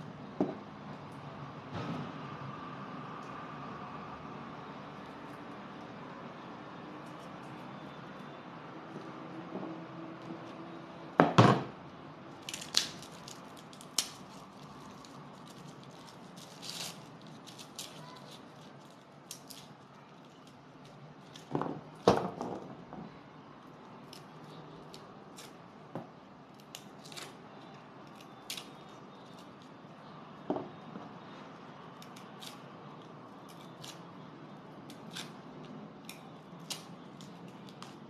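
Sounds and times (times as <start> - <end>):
papery shallot skins crackling: 12.3 - 21.5, 26.5 - 30.0, 31.9 - 34.2, 34.8 - 38.0.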